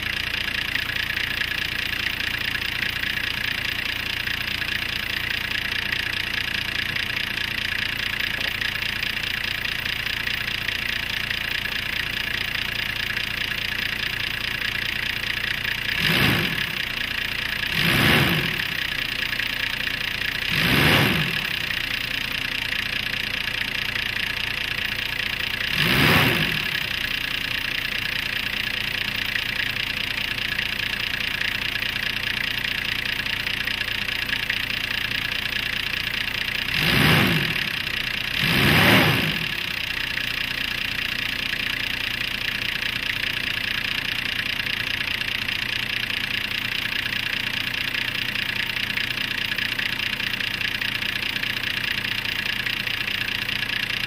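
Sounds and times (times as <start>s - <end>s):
diesel engine idling: 0.0s - 54.0s
diesel engine revving: 15.8s - 19.0s, 20.3s - 21.8s, 25.5s - 27.1s, 36.2s - 39.9s.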